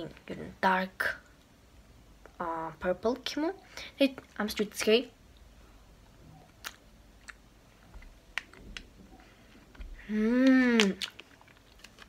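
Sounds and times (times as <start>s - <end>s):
mouth clicks chewing candy: 6.4s - 8.9s
person humming mmm: 10.0s - 11.1s.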